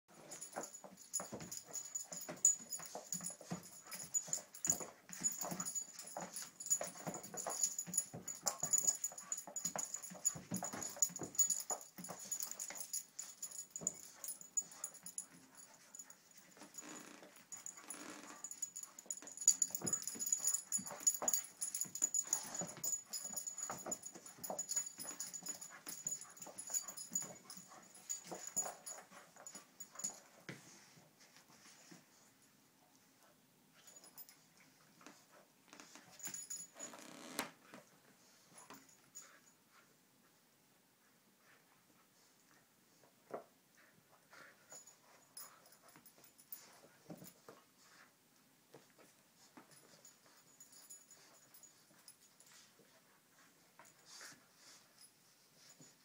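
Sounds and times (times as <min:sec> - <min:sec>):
paws and toy knocking and scuffling: 0:00.1 - 0:40.4, 0:41.4 - 0:56.0.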